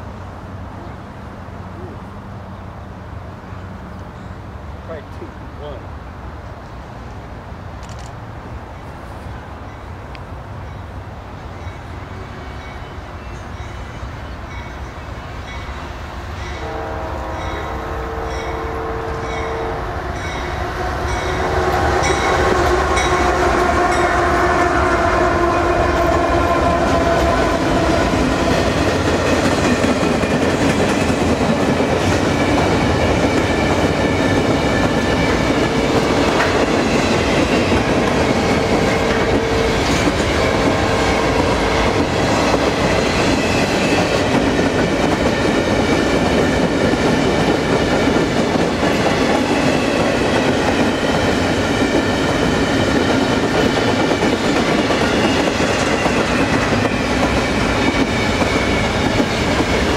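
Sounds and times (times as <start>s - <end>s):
train rumble with rail clatter: 0.0s - 59.9s
locomotive air horn blasts: 16.6s - 19.9s.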